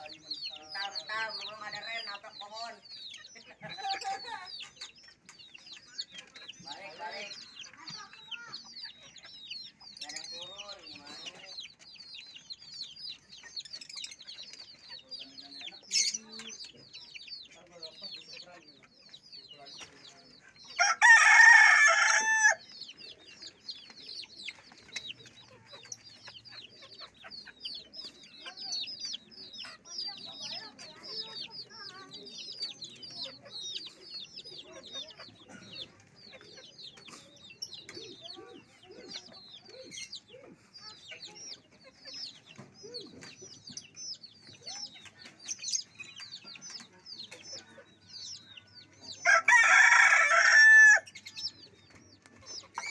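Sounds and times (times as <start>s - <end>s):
high-pitched bird chirping: 0.0s - 20.9s, 22.1s - 52.9s
rooster crowing: 20.8s - 22.6s, 49.2s - 51.1s.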